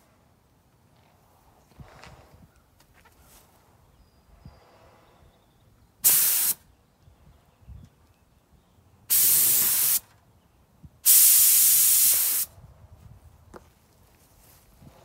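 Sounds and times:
paint spray gun hissing: 6.0s - 6.6s, 9.1s - 10.0s, 11.0s - 12.5s.

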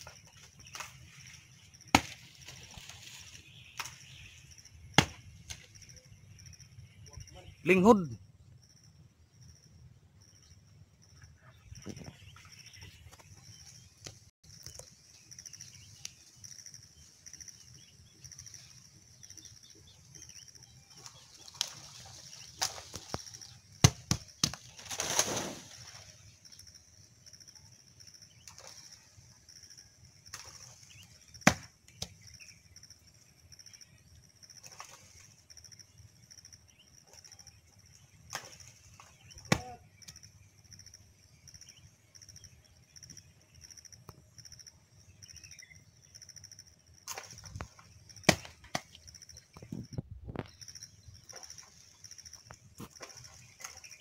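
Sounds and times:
palm fronds rustling: 0.0s - 4.4s, 20.9s - 26.6s.

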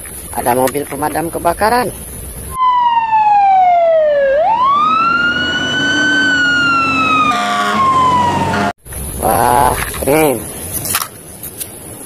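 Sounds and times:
fire engine siren wailing: 2.6s - 8.8s
horn blast: 7.0s - 8.7s.

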